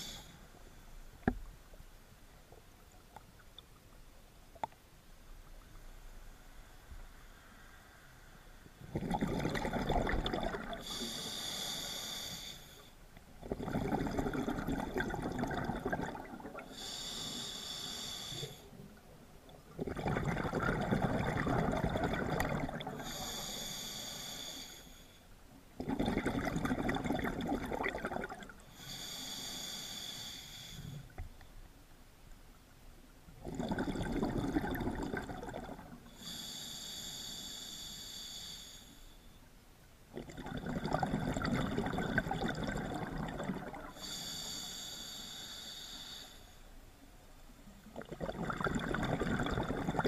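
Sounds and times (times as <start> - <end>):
regulator inhale hiss: 0.0 - 1.4, 10.8 - 13.0, 16.7 - 19.0, 23.0 - 25.4, 28.7 - 31.2, 36.0 - 39.5, 43.9 - 46.8
exhaled bubbles rushing: 8.9 - 10.8, 13.4 - 16.7, 19.7 - 23.0, 25.8 - 28.5, 33.4 - 36.0, 40.2 - 43.9, 47.9 - 50.0.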